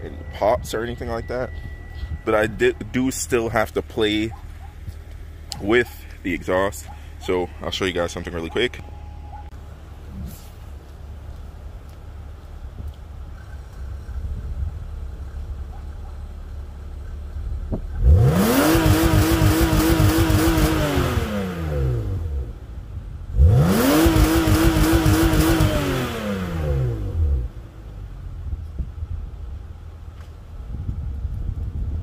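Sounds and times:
car engine idling and revving: 0.0 - 32.0
engine bouncing off rev limiter: 17.0 - 22.6, 23.3 - 28.0.

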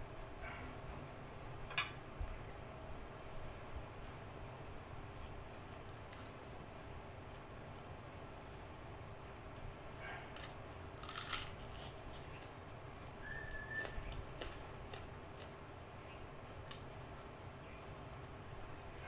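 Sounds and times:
quiet chewing: 7.3 - 19.0
crunch of biting onion: 10.2 - 12.5.

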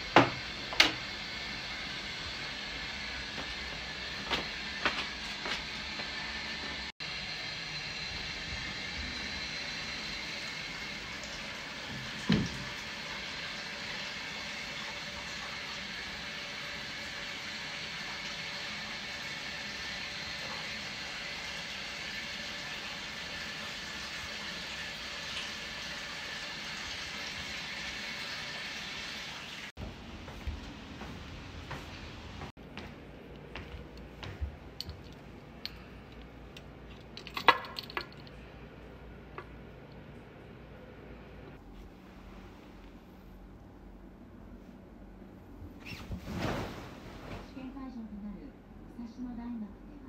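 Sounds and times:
water running into bathtub: 0.0 - 29.8.

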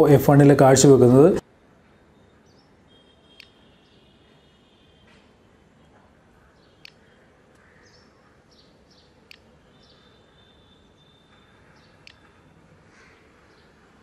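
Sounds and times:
sharp clicks: 3.4 - 3.6, 6.8 - 7.7, 9.2 - 9.5, 12.0 - 12.4.

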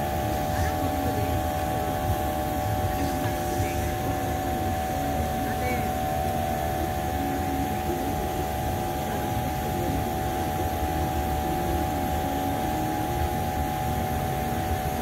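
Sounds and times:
machine drone: 0.0 - 15.0.

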